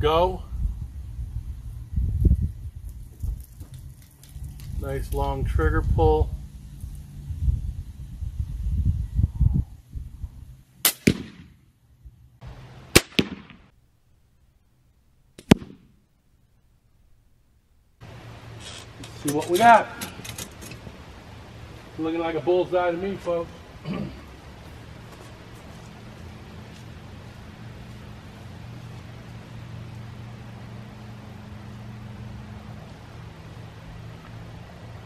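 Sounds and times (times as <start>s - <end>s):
low mechanical hum: 0.0s - 13.0s, 13.7s - 35.0s
bolt striking bag target: 10.9s - 11.5s, 15.4s - 15.9s.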